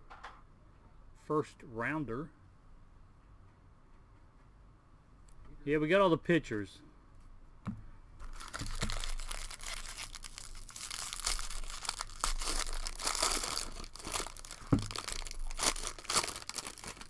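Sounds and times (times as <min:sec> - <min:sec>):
foil wrapper tearing and crinkling: 0:08.2 - 0:17.0.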